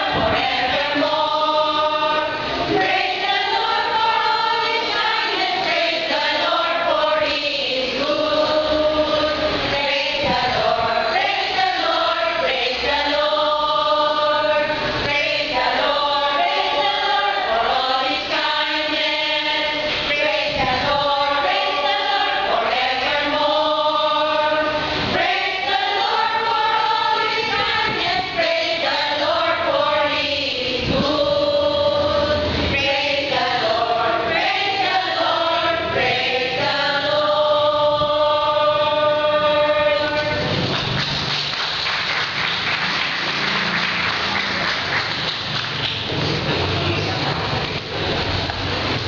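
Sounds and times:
women's choir singing: 0.0s - 45.8s
applause: 40.6s - 46.5s.

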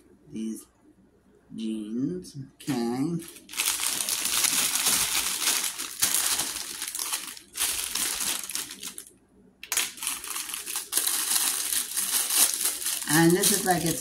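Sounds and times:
packaging crinkling: 3.2s - 14.0s.

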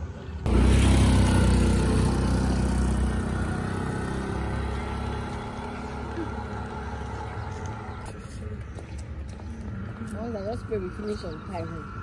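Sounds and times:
vehicle engine running: 0.4s - 11.7s.

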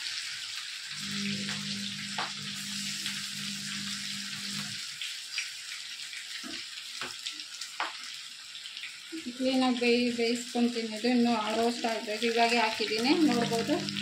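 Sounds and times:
food deep-frying in oil: 0.0s - 14.0s
low hum: 1.0s - 4.8s, 13.2s - 14.0s.

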